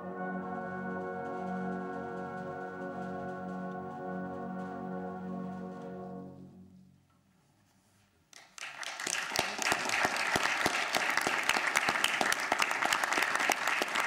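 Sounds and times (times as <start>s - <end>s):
audience applause: 8.4s - 14.0s.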